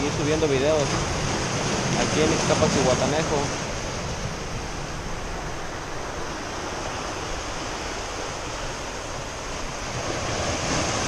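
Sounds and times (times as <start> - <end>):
waves breaking on rocky shore: 0.0 - 11.0.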